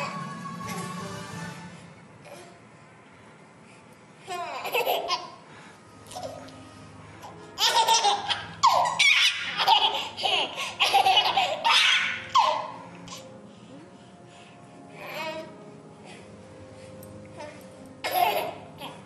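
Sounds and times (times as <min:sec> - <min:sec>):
baby laughing: 0:04.3 - 0:05.4, 0:07.2 - 0:13.2, 0:18.0 - 0:19.0.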